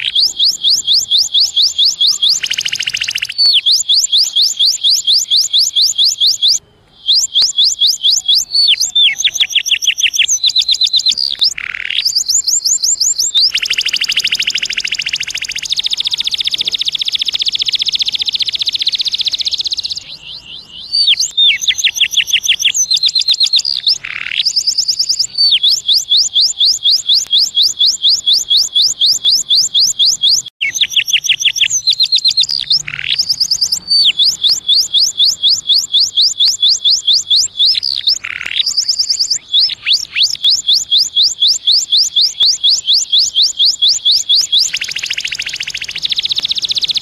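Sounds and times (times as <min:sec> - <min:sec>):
canary singing trills: 0:00.0 - 0:47.0.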